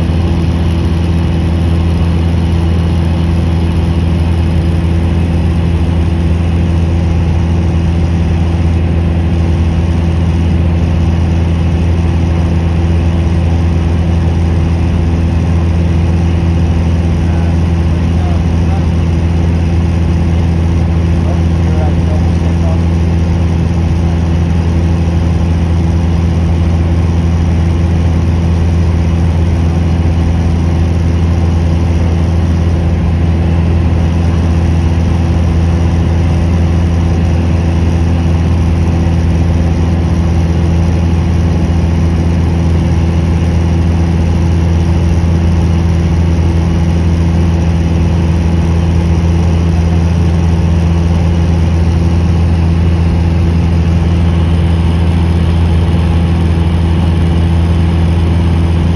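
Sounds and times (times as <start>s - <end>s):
aircraft cabin engine drone: 0.0s - 58.9s.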